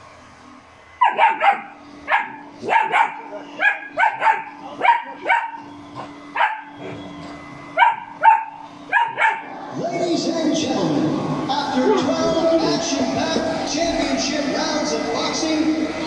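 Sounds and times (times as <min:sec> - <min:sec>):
robot vacuum humming: 0:00.0 - 0:16.0
dog barking: 0:01.0 - 0:05.7, 0:06.4 - 0:06.8, 0:07.8 - 0:09.5.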